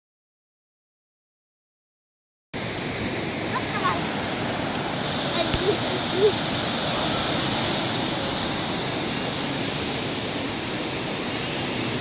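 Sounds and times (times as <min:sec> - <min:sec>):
river rushing over rapids: 0:02.6 - 0:12.0.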